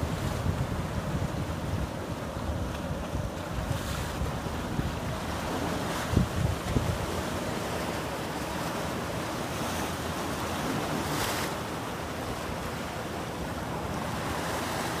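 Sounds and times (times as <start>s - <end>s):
wind on microphone: 0.0s - 7.3s
choppy water: 0.0s - 15.0s.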